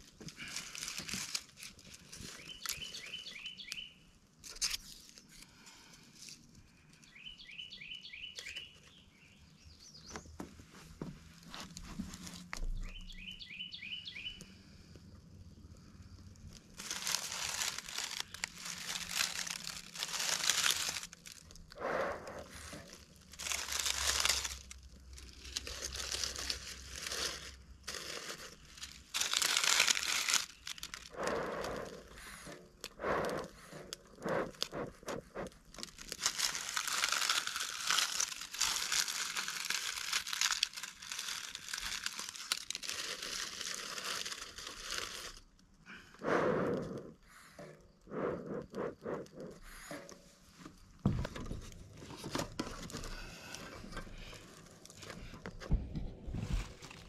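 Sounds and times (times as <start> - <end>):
bee smoker rustling and crackling: 0.0 - 3.9, 15.6 - 45.8.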